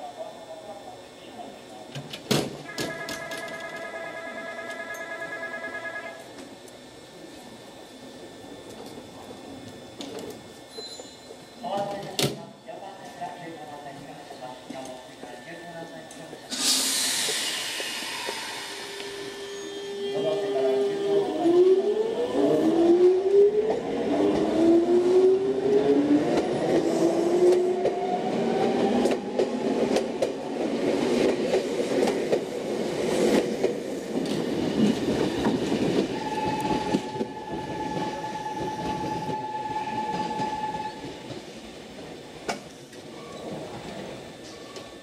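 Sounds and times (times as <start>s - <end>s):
steady high tone: 2.7s - 6.3s
electric train motors whining: 2.7s - 9.0s, 14.8s - 30.6s.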